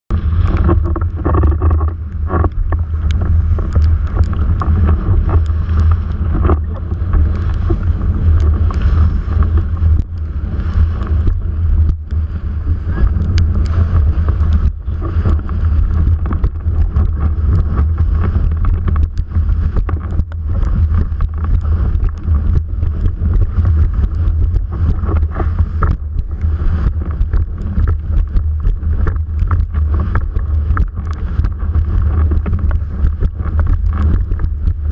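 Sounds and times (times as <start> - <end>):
rushing water spray: 0.1 - 34.9
wind buffeting camera: 0.1 - 34.9
small ticks: 0.4 - 12.3, 13.0 - 34.9.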